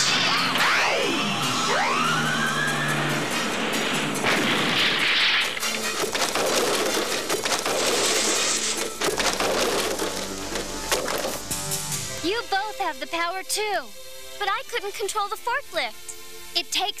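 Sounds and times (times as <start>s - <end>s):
cartoon action music: 0.0s - 11.6s
wooden crates crashing: 5.6s - 11.6s.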